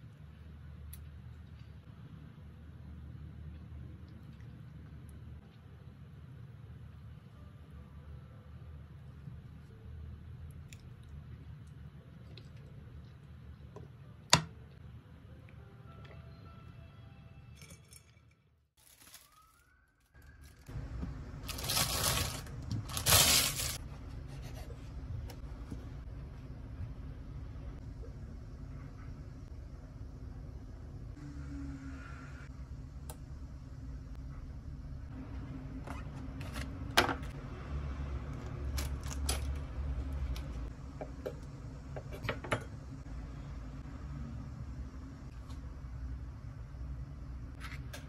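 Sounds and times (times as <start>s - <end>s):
low steady hum: 0.0s - 19.3s, 20.2s - 48.0s
foil wrapper crinkling: 18.8s - 20.7s, 21.4s - 23.8s
plastic bag rustling: 18.8s - 20.7s, 21.4s - 23.8s.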